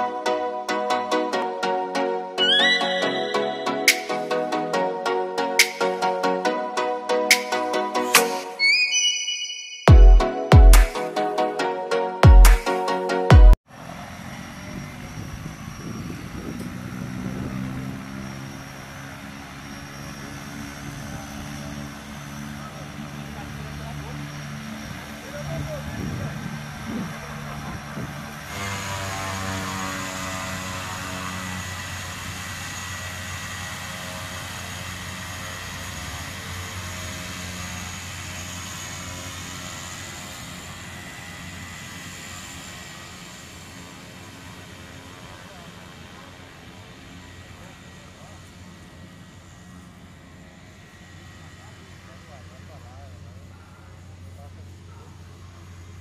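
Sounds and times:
high whine: 0.0s - 13.6s
propeller plane engine drone: 13.7s - 56.0s.

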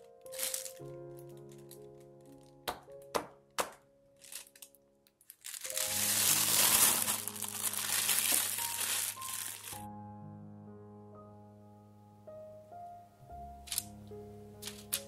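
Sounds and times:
plastic bag crinkling: 0.0s - 2.6s, 4.2s - 9.9s
soft background music: 0.0s - 15.0s.

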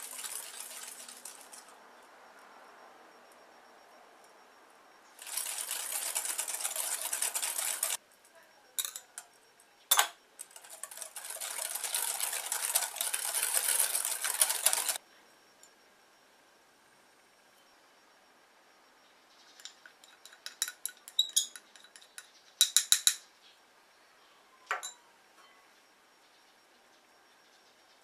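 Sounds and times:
whisk scraping glass bowl: 0.0s - 1.7s, 5.2s - 8.0s, 10.4s - 15.0s.

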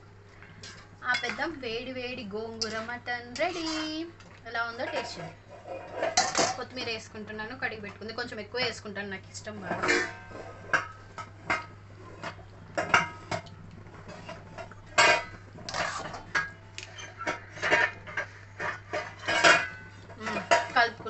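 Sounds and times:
steady low hum: 0.0s - 21.0s
metal kitchenware clinking: 1.1s - 1.6s, 4.7s - 6.8s, 9.6s - 13.5s, 14.1s - 21.0s.

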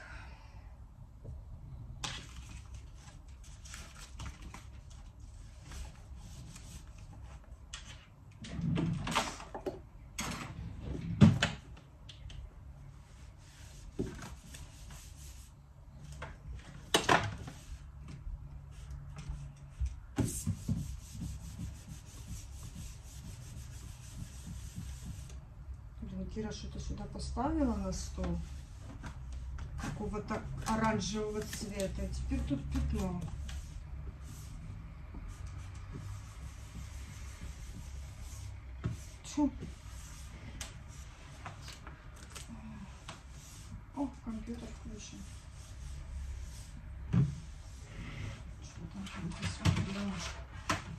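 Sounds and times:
cloth wiping a surface: 5.2s - 7.4s, 12.9s - 15.6s, 20.2s - 25.4s, 27.6s - 30.3s, 30.9s - 41.5s, 42.9s - 49.2s.

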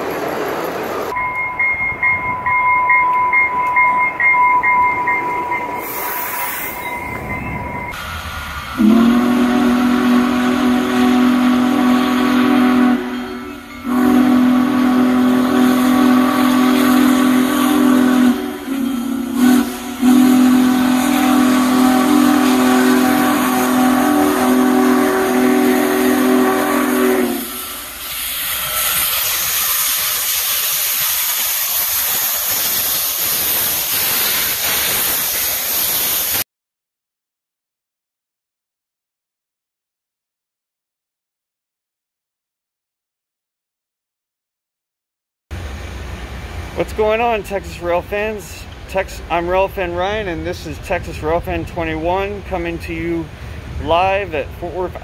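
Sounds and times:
high whistle tone: 1.1s - 10.2s, 12.0s - 15.1s
steam locomotive chime whistle: 1.1s - 36.4s
hissing steam: 5.7s - 36.4s.

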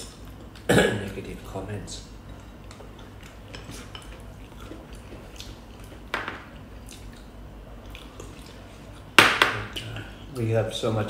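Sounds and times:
wet chewing: 2.3s - 6.1s.

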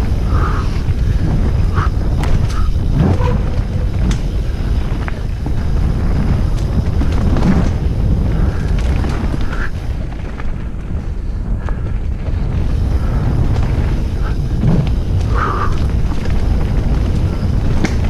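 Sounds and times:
bike clicks and rattles: 0.0s - 18.0s
wind buffeting microphone: 0.0s - 18.0s.

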